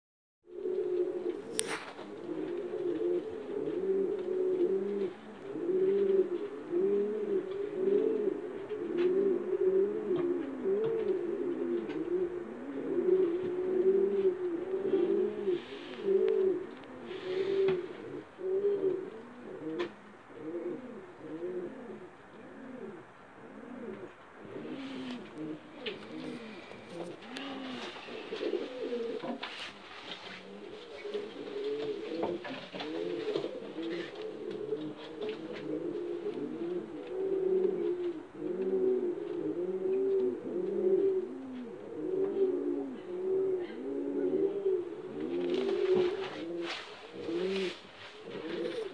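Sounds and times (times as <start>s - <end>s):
pigeon cooing: 0.5s - 48.9s.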